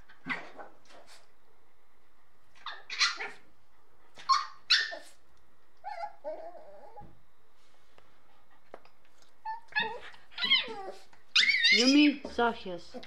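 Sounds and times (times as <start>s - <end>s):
puppies barking: 2.6s - 3.5s.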